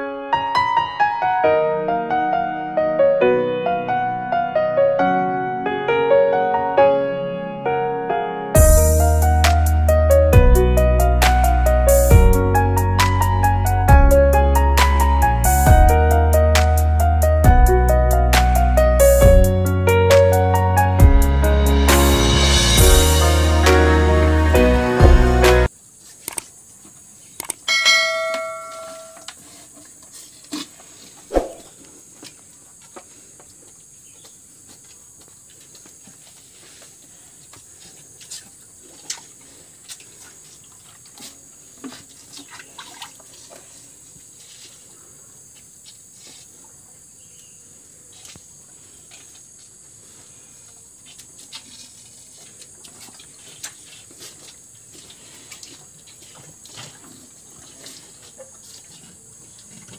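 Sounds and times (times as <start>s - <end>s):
bell-like chime: 27.7s - 29.3s
animals slurping water: 38.1s - 44.7s, 51.2s - 59.9s.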